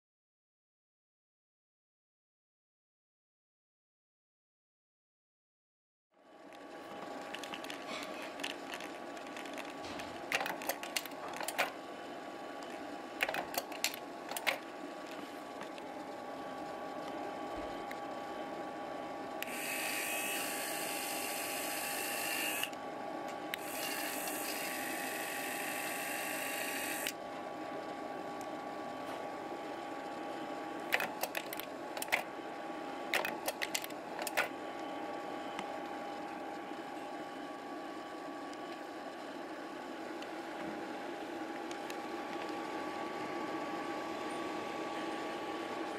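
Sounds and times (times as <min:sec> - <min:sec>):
projector fan hum: 0:06.2 - 0:45.9
motorized lens whirring: 0:19.4 - 0:27.2
slide mechanism clicking: 0:33.2 - 0:34.5.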